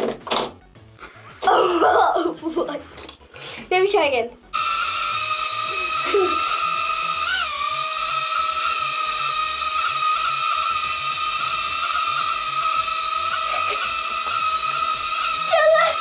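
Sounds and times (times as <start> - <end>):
toy drone motors whining: 4.5 - 16.0.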